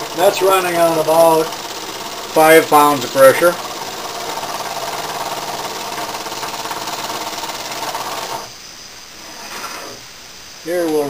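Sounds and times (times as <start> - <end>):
small air engine beating rapidly: 0.0 - 8.5.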